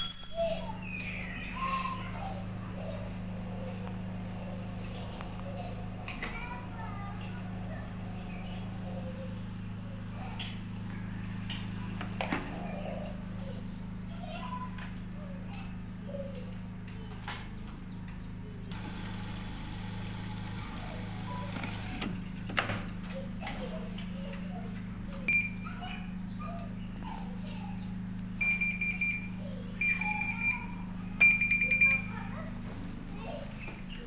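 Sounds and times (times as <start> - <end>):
washing machine beeping: 25.3 - 25.8, 28.4 - 32.3.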